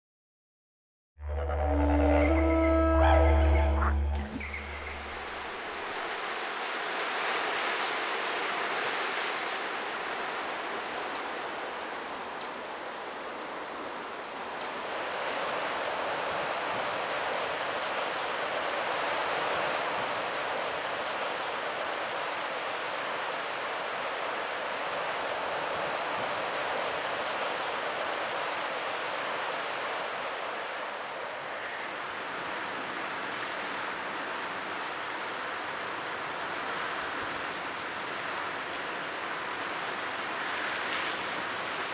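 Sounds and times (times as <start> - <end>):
surf washing on rocky shore: 1.7 - 41.9.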